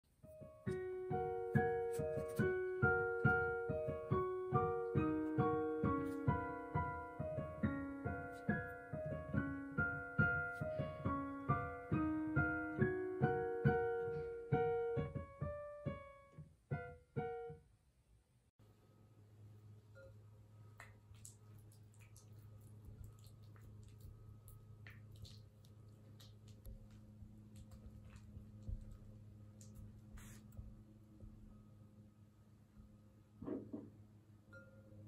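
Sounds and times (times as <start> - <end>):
piano music: 0.2 - 17.6.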